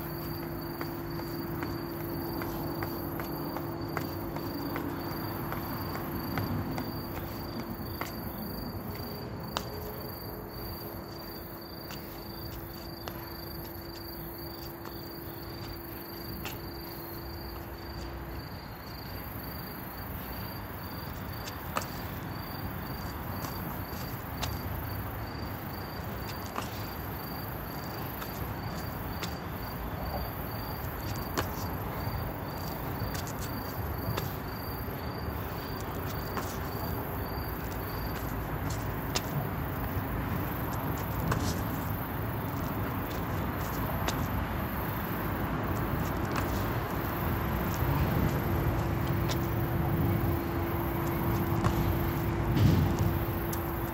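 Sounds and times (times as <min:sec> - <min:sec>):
crickets chirping: 0:00.0 - 0:53.9
taps on brick paving: 0:00.1 - 0:09.8.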